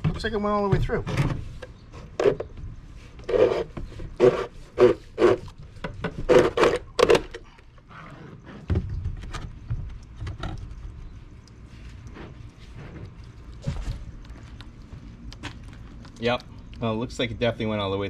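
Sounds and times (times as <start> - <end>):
plastic scraping rubs: 1.2 - 10.9.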